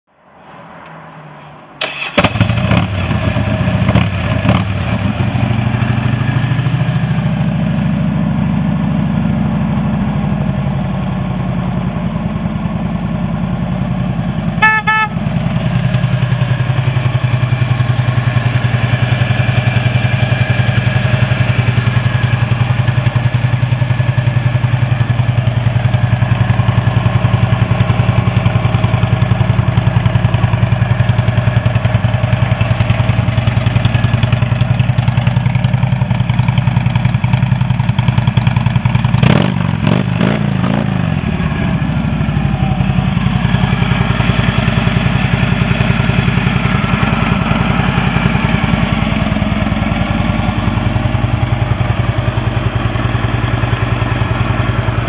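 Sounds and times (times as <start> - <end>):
motorcycle engine starting and idling: 1.8 - 55.0
motorcycle horn honk: 14.6 - 15.4.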